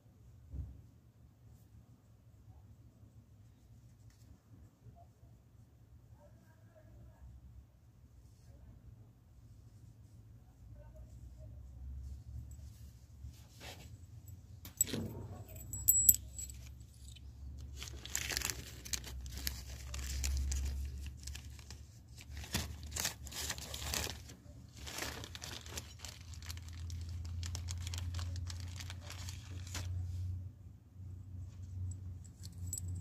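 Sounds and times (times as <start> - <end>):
metal parts clinking: 14.7 - 17.2, 32.3 - 33.0.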